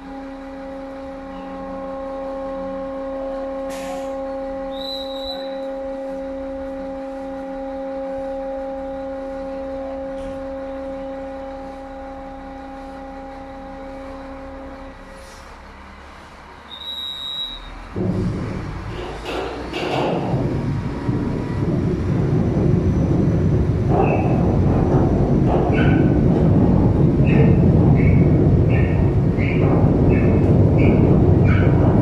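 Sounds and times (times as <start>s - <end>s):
steady horn blast: 0.0s - 15.6s.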